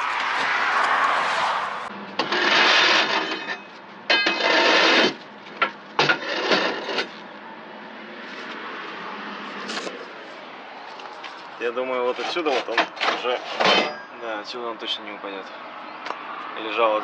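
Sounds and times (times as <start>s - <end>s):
crowbar scraping metal: 2.1s - 7.2s, 12.0s - 14.1s.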